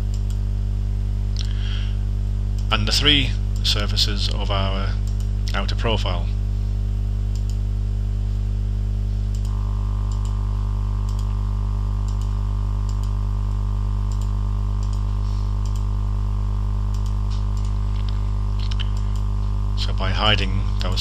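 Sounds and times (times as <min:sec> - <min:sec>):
low electrical hum: 0:00.0 - 0:21.0
computer mouse clicking: 0:07.3 - 0:07.6, 0:11.0 - 0:11.3, 0:12.0 - 0:13.2, 0:14.1 - 0:15.9, 0:16.9 - 0:19.3.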